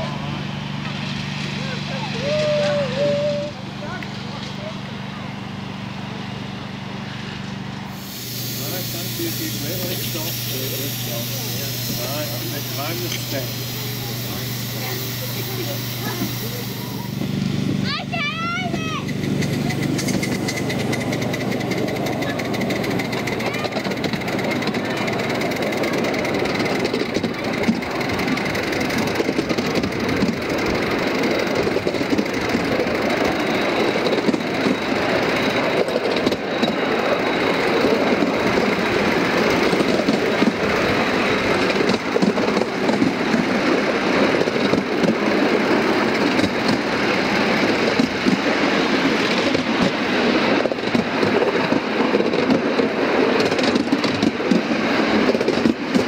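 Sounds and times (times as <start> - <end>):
miniature steam locomotive running: 0.0 - 56.0
small wheels clattering on rails: 18.6 - 56.0.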